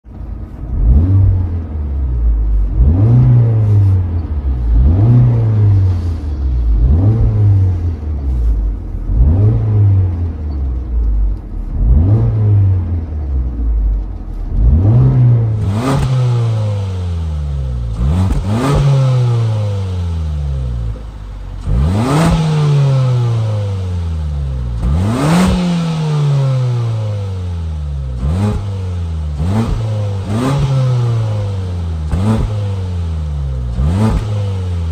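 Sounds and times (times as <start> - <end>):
car engine revving: 0.1 - 34.9.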